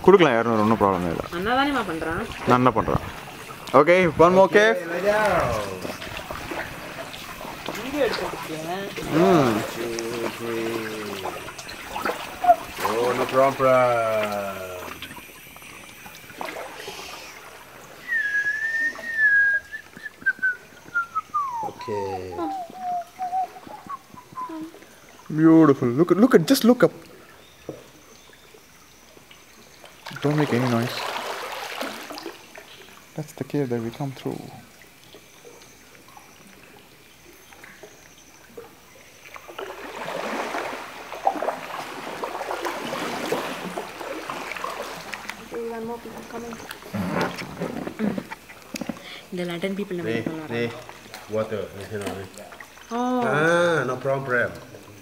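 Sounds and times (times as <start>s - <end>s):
water splashing around canoe: 0.0s - 55.0s
person whistling high note: 18.0s - 24.7s.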